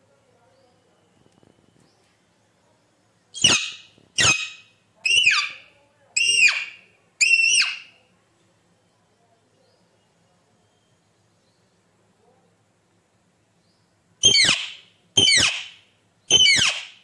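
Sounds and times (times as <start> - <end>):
parakeet squawking: 3.4 - 5.6, 6.2 - 7.9, 14.2 - 15.7, 16.3 - 16.9.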